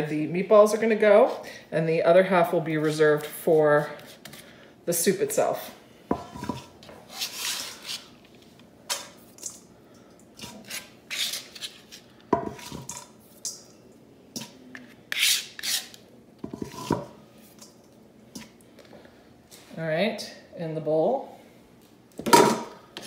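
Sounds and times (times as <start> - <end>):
knife scraping cutting board: 6.1 - 8.1, 10.4 - 13.0, 14.4 - 17.1.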